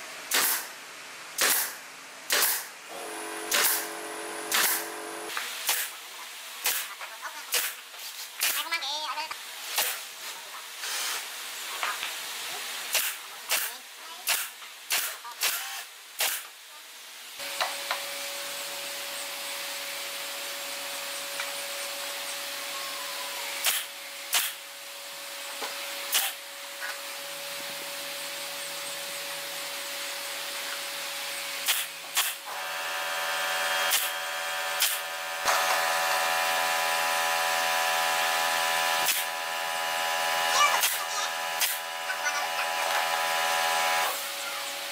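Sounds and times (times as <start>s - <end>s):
machine hum and hiss: 0.0s - 8.6s, 9.3s - 44.9s
nail gun firing: 0.3s - 0.7s, 1.4s - 5.9s, 12.9s - 16.5s, 23.6s - 24.6s, 26.1s - 26.4s, 31.6s - 36.7s, 38.8s - 39.3s, 40.8s - 41.9s.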